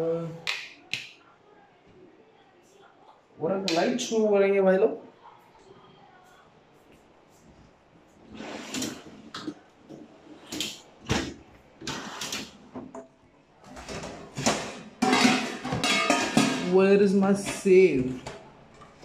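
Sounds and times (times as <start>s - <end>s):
cupboard doors sliding and knocking: 8.2s - 12.9s.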